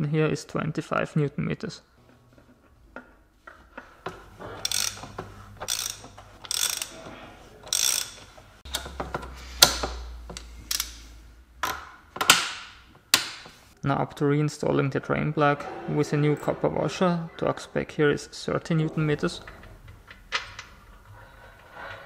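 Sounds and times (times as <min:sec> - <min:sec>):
ratchet wrench clicking: 0:04.6 - 0:07.0, 0:07.7 - 0:08.3, 0:10.7 - 0:11.0.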